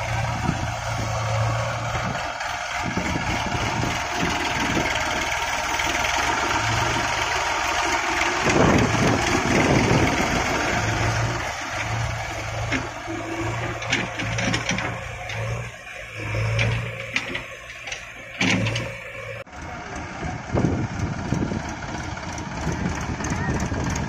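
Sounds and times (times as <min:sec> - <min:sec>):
diesel tractor engine running: 0:00.0 - 0:24.0
knocks and rattles: 0:08.2 - 0:19.0.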